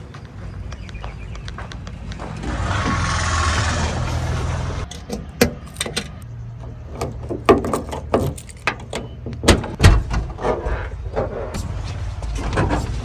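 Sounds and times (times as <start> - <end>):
keys jingling: 7.6 - 9.1.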